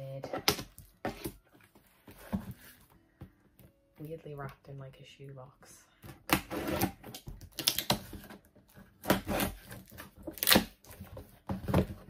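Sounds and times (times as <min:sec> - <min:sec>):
scissors cutting tape and paper: 0:06.3 - 0:08.4
paper wrapping crackling and tearing: 0:06.6 - 0:11.0.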